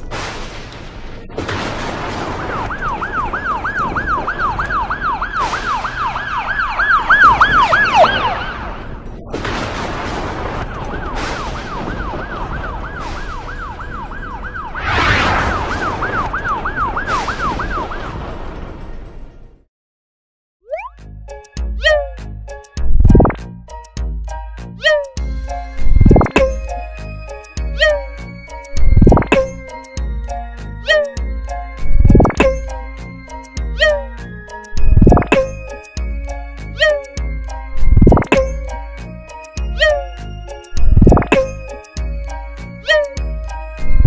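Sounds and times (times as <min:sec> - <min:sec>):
cartoon ambulance siren yelping: 0:02.5 - 0:08.8, 0:15.6 - 0:18.0, 0:21.8 - 0:22.2, 0:24.8 - 0:25.2, 0:27.6 - 0:28.3, 0:29.0 - 0:29.8, 0:30.8 - 0:31.3, 0:32.0 - 0:32.8, 0:33.6 - 0:34.2, 0:35.0 - 0:35.8, 0:36.7 - 0:37.3, 0:39.6 - 0:40.3, 0:41.0 - 0:41.8, 0:42.8 - 0:44.0.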